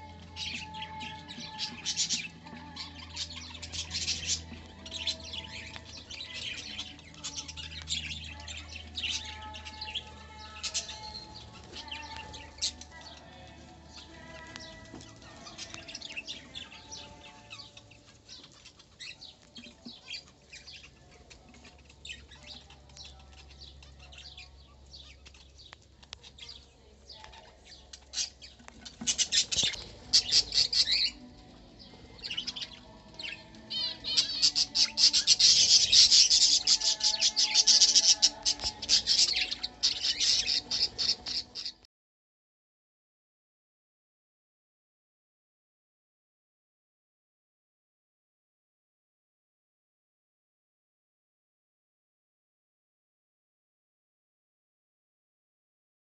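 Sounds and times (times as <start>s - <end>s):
parrots chirping and chattering: 0.0s - 41.9s.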